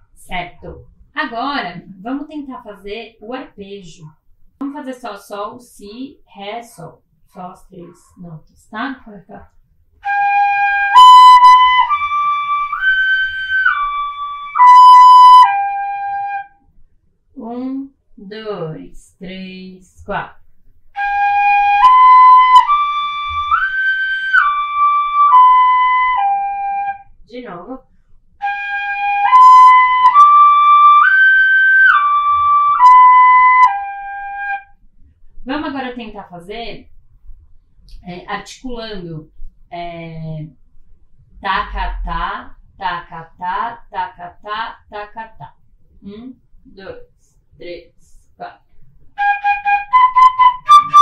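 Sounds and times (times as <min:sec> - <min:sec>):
fife playing arpeggio: 0:10.0 - 0:16.4, 0:21.0 - 0:27.0, 0:28.4 - 0:34.6, 0:49.2 - 0:51.0
wooden fife playing held notes: 0:49.2 - 0:51.0.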